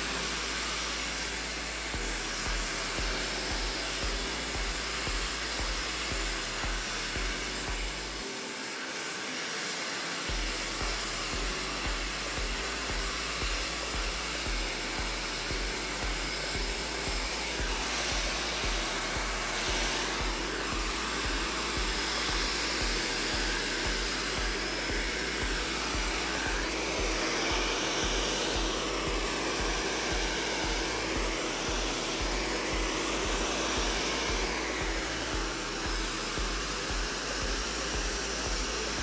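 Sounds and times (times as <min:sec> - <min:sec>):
hair dryer blowing: 0:00.0 - 0:39.0.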